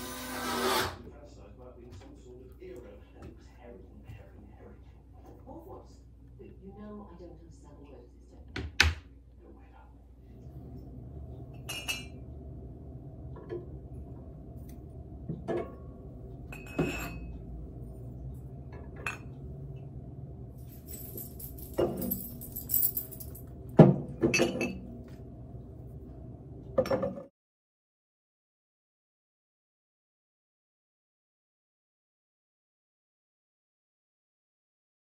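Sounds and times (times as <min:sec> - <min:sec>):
steady low hum: 0:09.1 - 0:26.8
coffee mugs clinking on wire rack: 0:11.6 - 0:12.2, 0:16.5 - 0:17.3, 0:24.2 - 0:24.8.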